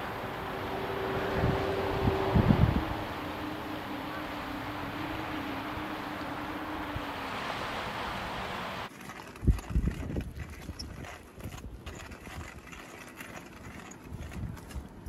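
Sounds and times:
uneven rumble: 0.0 - 11.1
wind hissing on microphone: 0.0 - 11.8.

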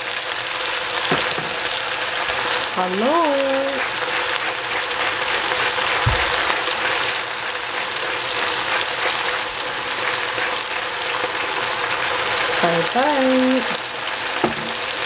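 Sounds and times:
vegetables sizzling in hot oil: 0.0 - 15.0
low thump: 6.0 - 6.3.

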